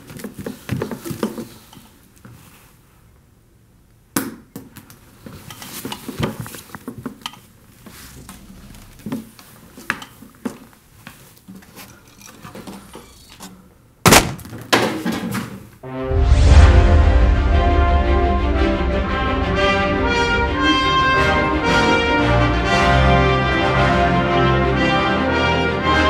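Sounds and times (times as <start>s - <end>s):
theme music with brass: 15.8s - 26.0s.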